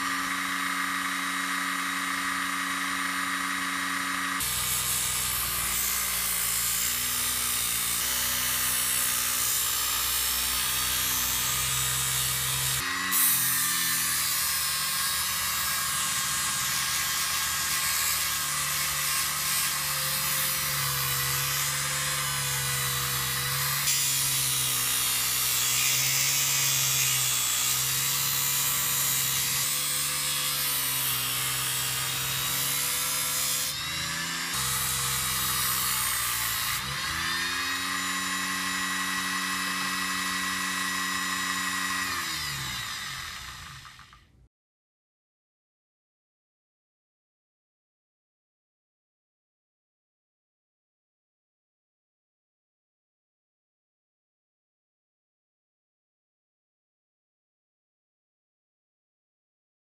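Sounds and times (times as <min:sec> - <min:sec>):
steel rod grinding on sanding disc: 0:00.0 - 0:44.1.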